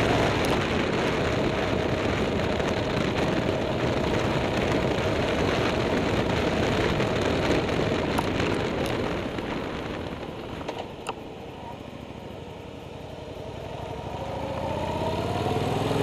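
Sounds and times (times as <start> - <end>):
wind noise: 0.0 - 12.6
vehicle engine running: 0.0 - 16.0.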